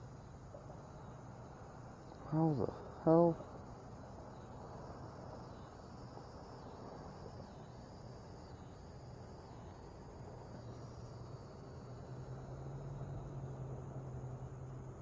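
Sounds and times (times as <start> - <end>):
lower insect trill: 0.0 - 15.0
high insect trilling: 2.0 - 6.8.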